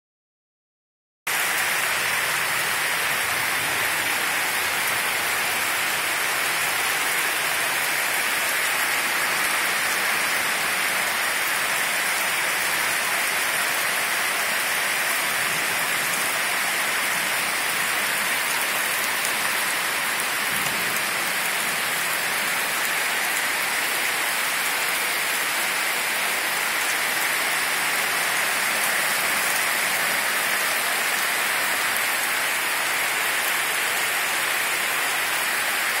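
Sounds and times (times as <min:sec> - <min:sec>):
heavy rain pouring: 0:01.3 - 0:36.0.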